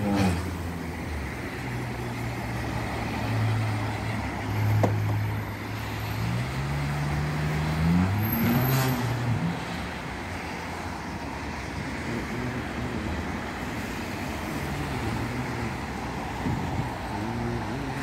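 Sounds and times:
road noise: 0.0s - 18.0s
car engine revving: 6.1s - 9.7s.

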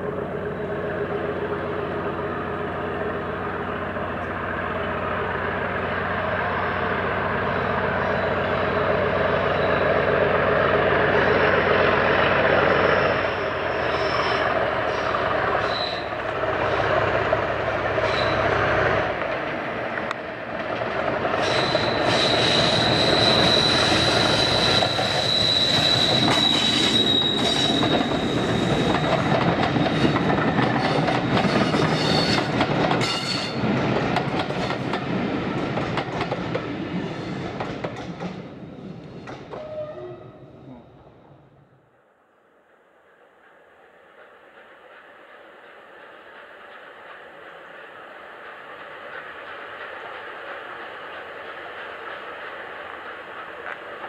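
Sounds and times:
diesel locomotive engine rumble: 0.0s - 54.0s
high wheel squeal: 6.4s - 10.2s, 11.1s - 16.9s, 18.0s - 18.7s, 21.3s - 33.6s
wheels clicking over rail joints: 26.1s - 36.8s, 44.2s - 54.0s.

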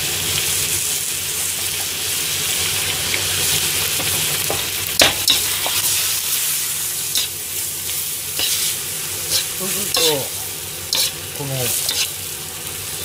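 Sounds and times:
food sizzling in a wok: 0.0s - 13.0s
metal ladle scraping a wok: 8.4s - 10.2s, 10.9s - 11.2s, 11.8s - 12.2s.

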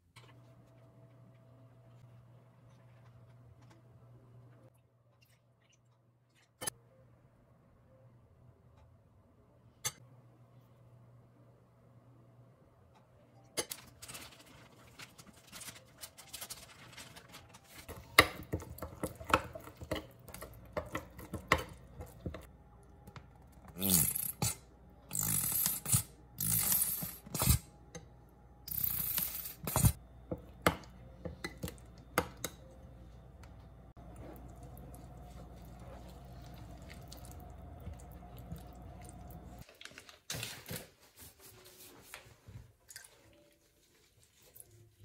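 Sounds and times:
spoon scraping bowl: 28.7s - 30.0s.

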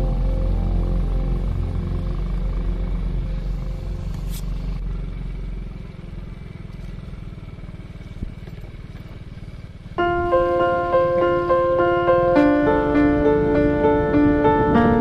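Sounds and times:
piano music: 0.0s - 4.1s, 10.0s - 15.0s
motorcycle engine running: 0.0s - 15.0s.

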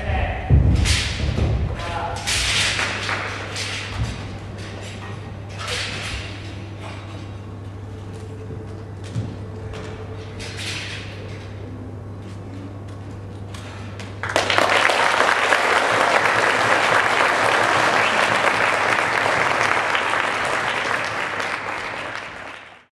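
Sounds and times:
audience applauding: 14.2s - 22.9s.

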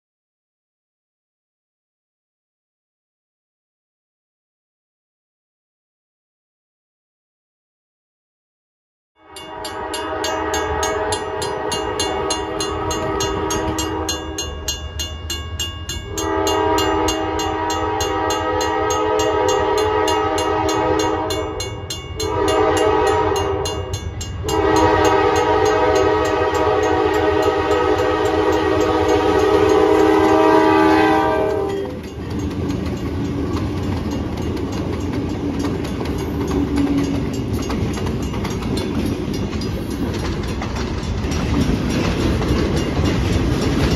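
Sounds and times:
locomotive air horn blasts: 9.2s - 14.5s, 16.1s - 32.1s
train wheels on rails: 9.4s - 43.9s.

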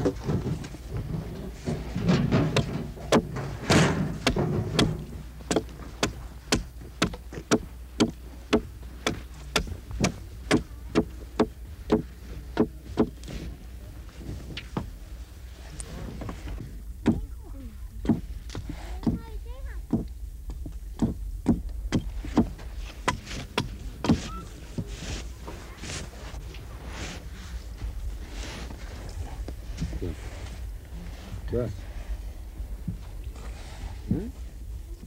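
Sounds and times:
hatchet striking wood: 4.2s - 12.0s.

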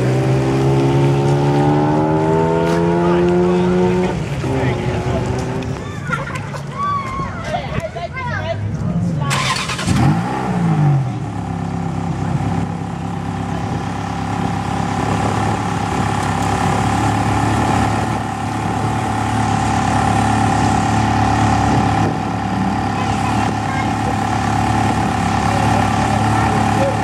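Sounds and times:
car engine idling: 9.2s - 27.0s.

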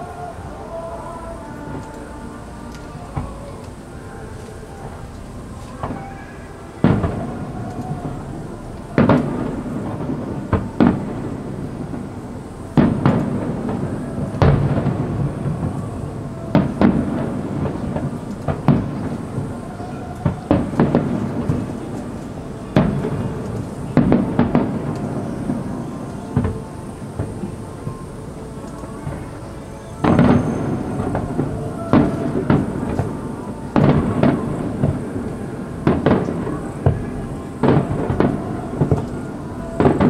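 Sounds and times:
fireworks booming: 0.0s - 40.0s
rumbling echo: 0.0s - 40.0s.

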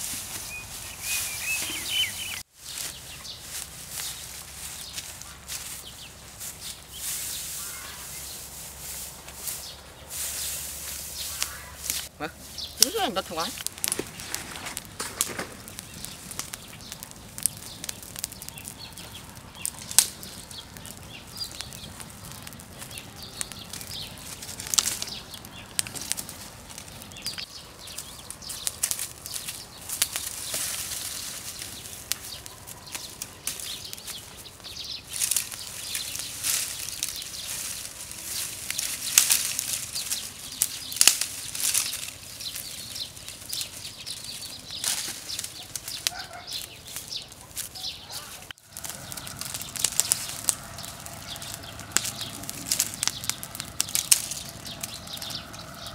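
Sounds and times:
dry branches rustling and cracking: 0.0s - 55.9s
grass fire crackling and popping: 0.0s - 55.9s
soft hiss of burning: 0.0s - 55.9s.

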